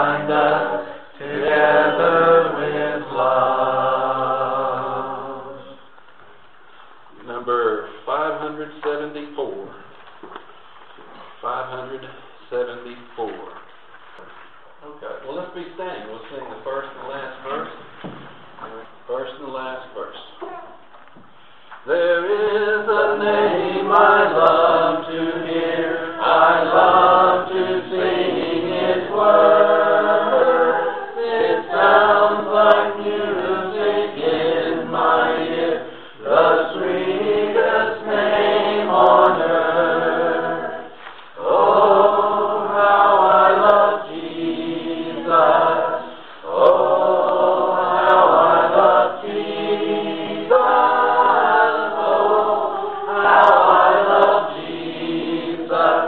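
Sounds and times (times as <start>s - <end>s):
group singing a hymn: 0.0s - 6.0s, 21.4s - 56.0s.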